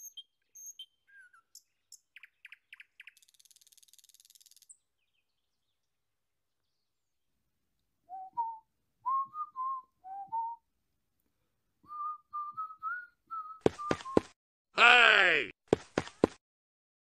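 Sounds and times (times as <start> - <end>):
person whistling a tune: 8.1 - 10.6, 11.9 - 14.3.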